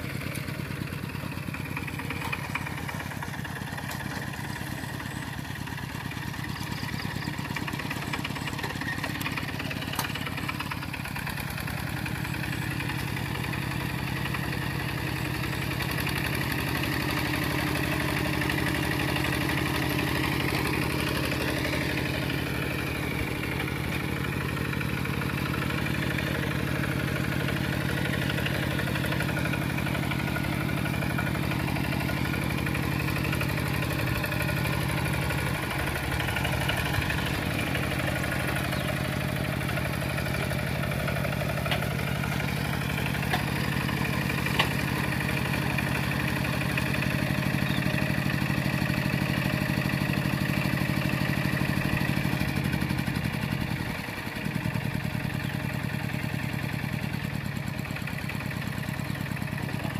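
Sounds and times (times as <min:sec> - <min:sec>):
diesel tractor engine running: 0:00.0 - 0:59.9.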